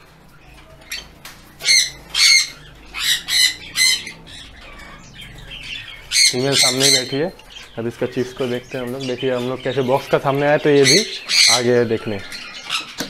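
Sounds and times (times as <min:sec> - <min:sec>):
parrots squawking: 0:00.0 - 0:13.0.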